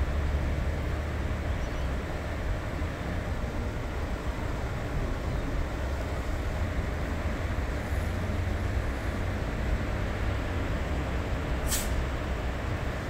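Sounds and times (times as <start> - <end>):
road traffic rumble: 0.0 - 13.0
short sharp hiss: 11.6 - 12.0.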